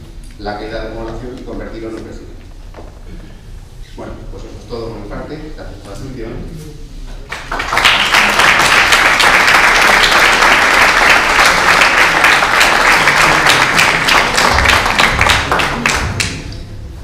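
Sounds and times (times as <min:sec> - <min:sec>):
audience applauding: 0:07.3 - 0:16.7.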